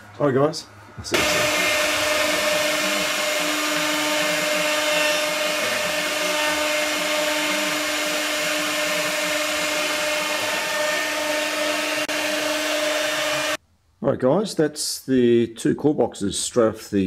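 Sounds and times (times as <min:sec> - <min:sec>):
router spindle whine: 0:01.0 - 0:13.6.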